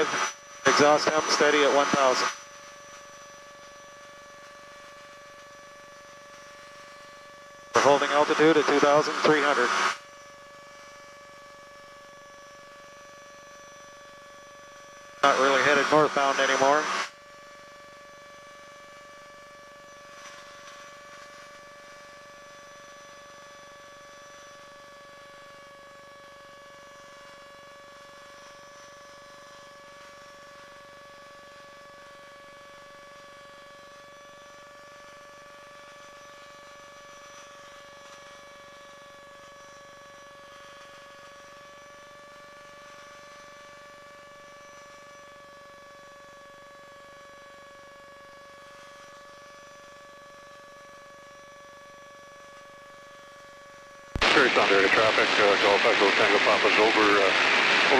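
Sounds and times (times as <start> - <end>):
aircraft engine whine: 0.0 - 30.9, 47.6 - 57.9.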